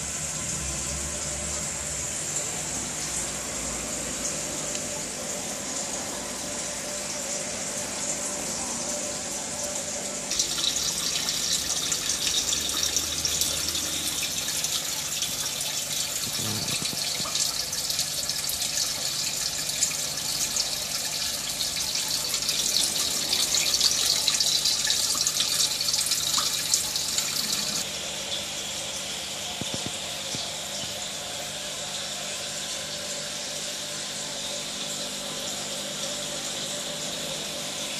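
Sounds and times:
water splashing and trickling: 0.0s - 27.9s
small water drips: 10.3s - 27.9s.

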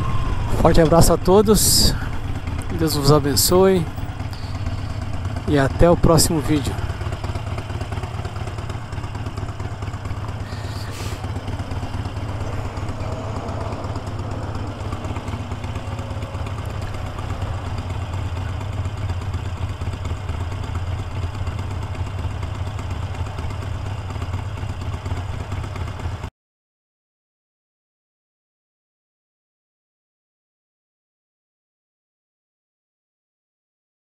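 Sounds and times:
motorcycle engine running: 0.0s - 26.3s.

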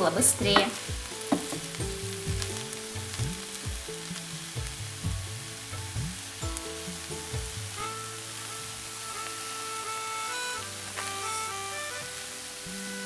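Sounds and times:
wooden spatula stirring in pan: 0.0s - 5.3s
light sizzle: 0.0s - 13.0s.

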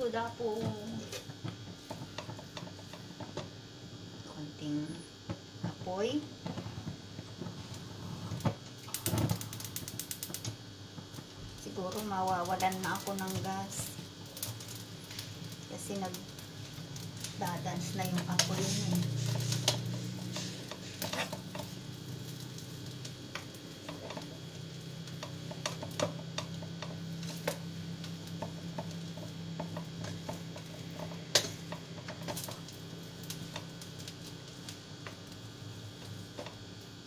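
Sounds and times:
steady low hum: 0.0s - 37.0s
utensil scraping a pan: 17.8s - 21.9s.

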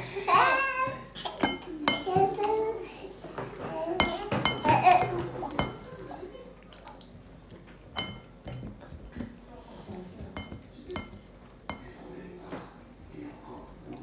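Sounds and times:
spoon and cup clinking on bowl: 1.3s - 2.3s, 4.0s - 5.9s, 7.9s - 9.0s, 10.4s - 12.0s.

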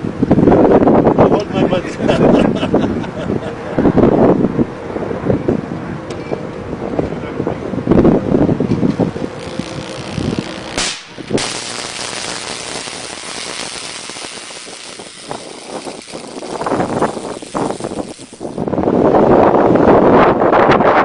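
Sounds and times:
electric arc crack: 8.9s - 18.8s
electric arcing hiss with crackles: 9.0s - 18.8s.

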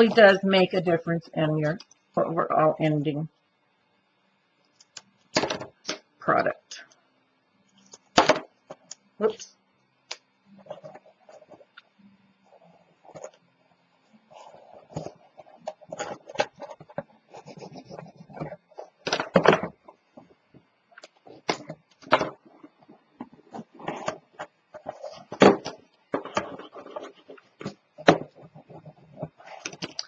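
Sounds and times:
paper tapping and rubbing: 14.3s - 20.3s.

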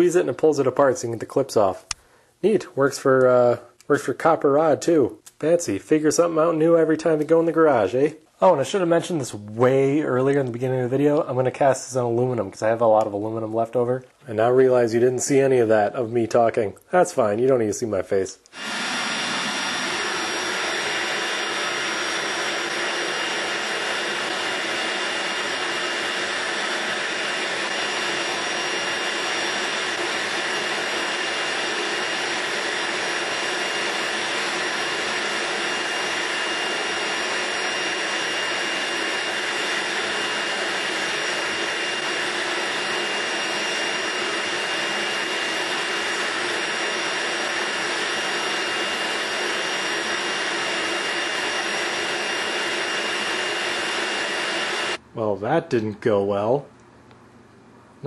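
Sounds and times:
furnace burner rushing: 18.5s - 55.0s.

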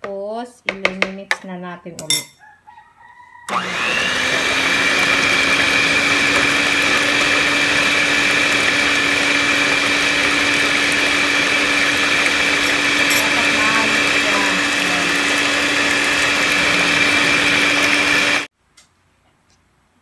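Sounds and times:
electric mixer whining: 3.5s - 18.5s.

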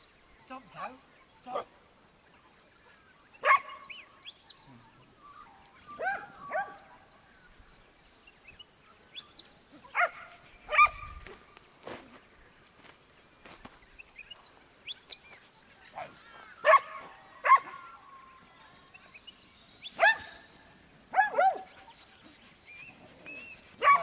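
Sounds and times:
small birds chirping: 0.0s - 24.0s
dog barking: 3.4s - 3.9s, 6.0s - 6.9s, 9.9s - 11.1s, 16.0s - 17.9s, 20.0s - 20.4s, 21.1s - 21.8s, 23.8s - 24.0s.

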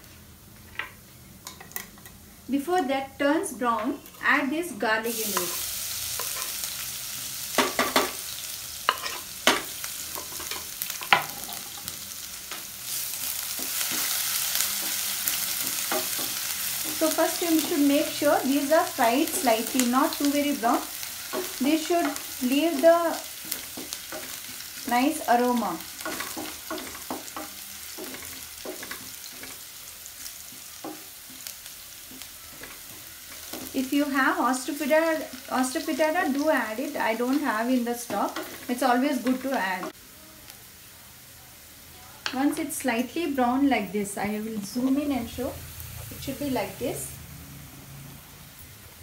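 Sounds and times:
garlic sizzling in hot oil: 1.4s - 49.0s
spatula scraping a pan: 8.9s - 9.3s, 25.9s - 33.8s.

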